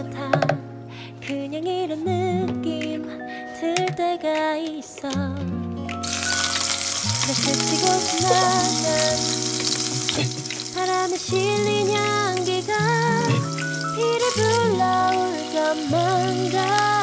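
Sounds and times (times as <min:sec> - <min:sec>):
background music: 0:00.0 - 0:17.0
tofu sizzling in hot oil: 0:06.0 - 0:17.0.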